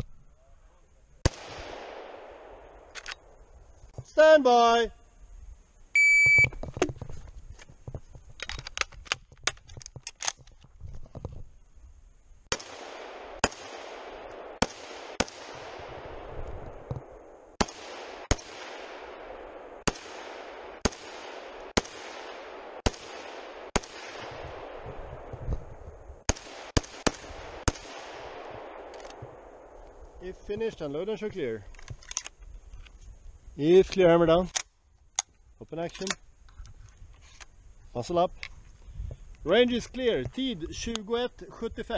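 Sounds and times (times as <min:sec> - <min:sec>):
rifle shots: 0:01.2 - 0:03.4, 0:12.5 - 0:30.6
shot timer beep: 0:06.0 - 0:06.5.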